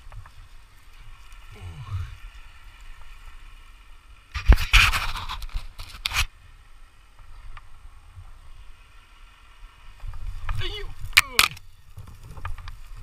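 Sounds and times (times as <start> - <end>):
scraping and rustling against camera: 4.3 - 6.3.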